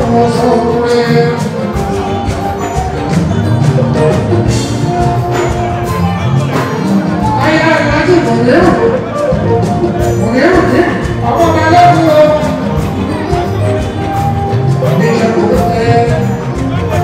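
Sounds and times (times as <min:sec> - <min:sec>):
man singing: 0:00.0 - 0:03.1, 0:14.7 - 0:17.0
band playing with percussion: 0:00.0 - 0:17.0.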